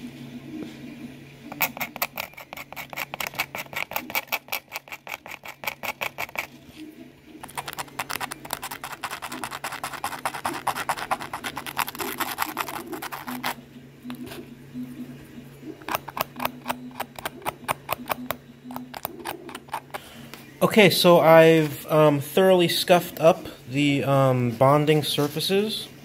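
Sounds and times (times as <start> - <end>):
hand sanding scratching strokes: 7.5 - 13.6.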